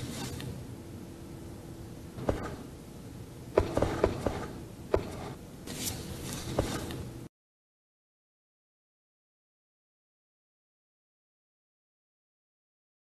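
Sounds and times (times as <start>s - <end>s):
rustling: 5.7s - 7.0s.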